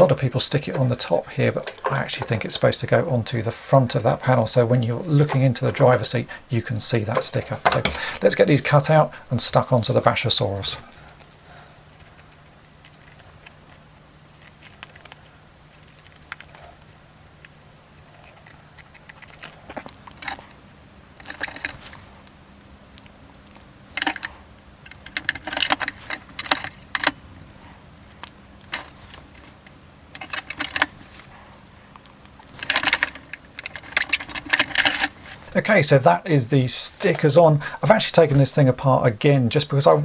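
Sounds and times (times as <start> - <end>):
faint steady hum: 0.0 - 40.0
hands handling plastic toy: 10.9 - 20.6, 21.2 - 35.7.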